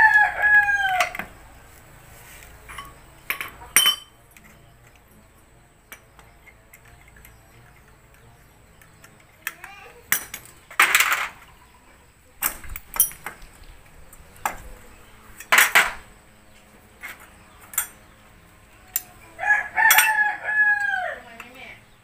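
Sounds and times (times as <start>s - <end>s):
metal tools clinking: 2.6s - 4.9s, 8.8s - 11.4s, 12.7s - 13.4s, 17.6s - 18.0s, 19.9s - 20.2s.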